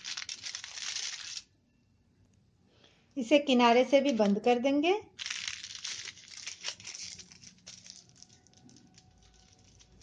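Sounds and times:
aluminium foil crinkling: 0.0s - 1.6s, 3.9s - 10.0s.

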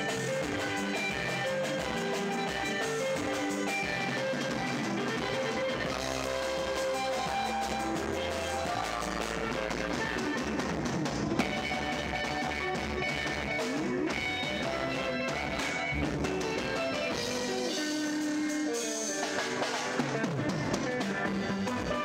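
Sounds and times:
bass guitar: 0.0s - 22.0s
drum kit: 0.0s - 22.0s
electric guitars: 0.0s - 22.0s.

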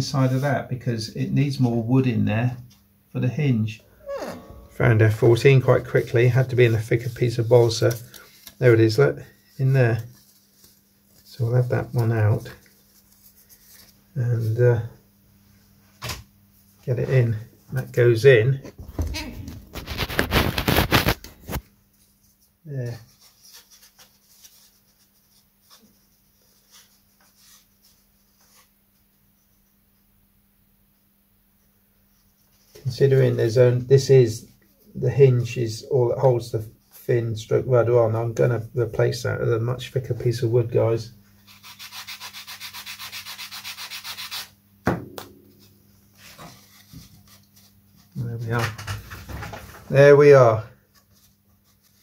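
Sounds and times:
wood rubbing on sanding block: 41.5s - 44.5s.

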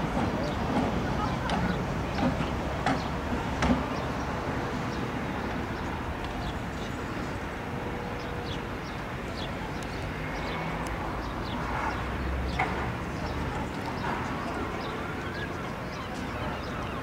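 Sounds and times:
electric tram running on track: 0.0s - 17.0s
small birds chirping: 8.2s - 17.0s.

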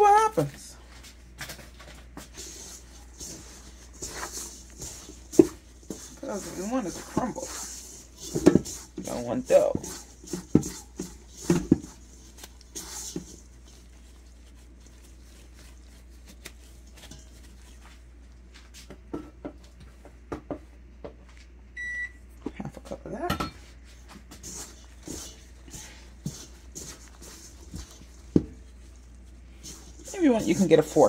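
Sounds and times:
hands squishing dough: 0.0s - 20.3s, 22.5s - 31.0s
knocks and scrapes against bowl: 2.2s - 15.7s, 16.4s - 17.9s, 24.3s - 28.8s
appliance electronic beep: 21.8s - 22.2s.

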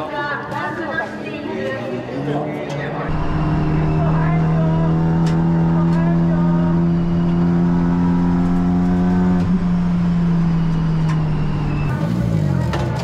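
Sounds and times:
race car engine running: 3.1s - 13.0s.

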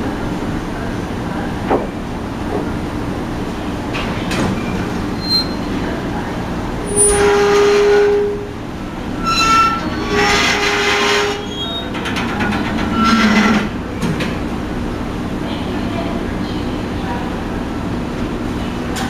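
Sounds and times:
metal ramp squealing: 5.2s - 5.7s, 6.9s - 8.5s, 9.1s - 13.8s.

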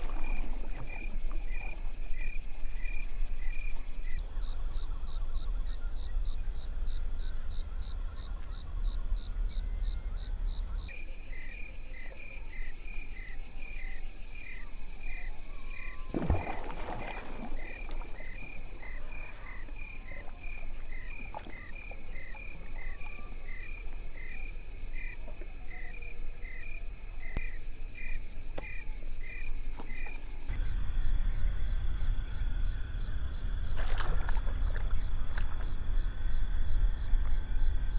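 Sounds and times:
steady low hum: 4.0s - 11.0s, 30.3s - 37.9s
splash-like rustle: 16.1s - 18.6s, 33.6s - 35.8s.

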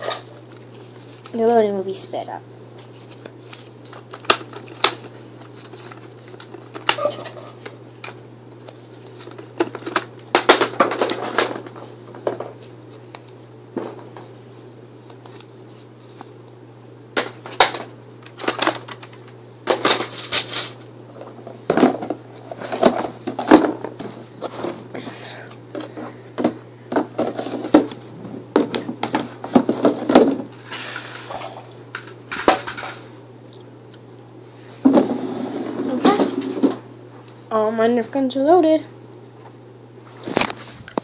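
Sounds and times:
steady low hum: 0.0s - 41.0s
plastic clattering: 9.2s - 12.6s.

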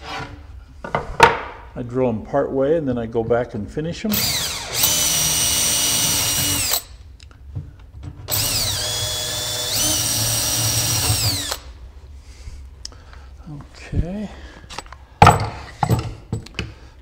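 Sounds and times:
cordless drill boring through wood: 4.1s - 6.9s, 8.3s - 11.7s.

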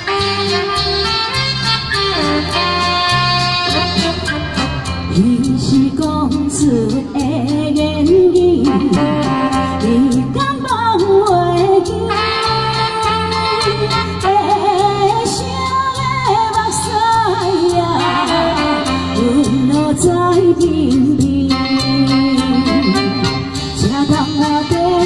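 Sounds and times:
backing track with drums and bass: 0.0s - 25.0s
woman singing a ballad: 5.1s - 25.0s.

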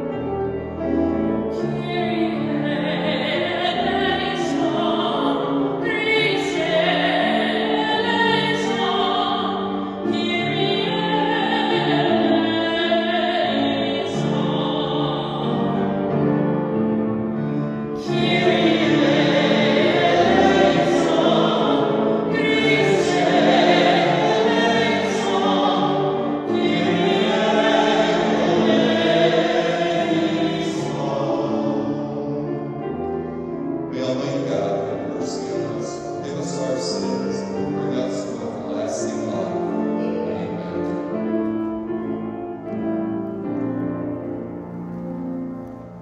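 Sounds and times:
grand piano: 0.0s - 46.0s
woman singing a hymn: 1.5s - 16.0s, 18.0s - 31.8s.

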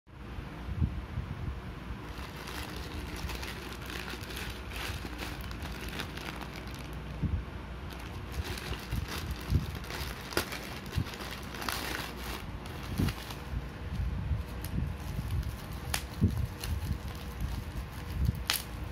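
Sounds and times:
plastic bag crinkling: 2.1s - 7.2s, 7.9s - 13.5s, 14.4s - 18.8s.

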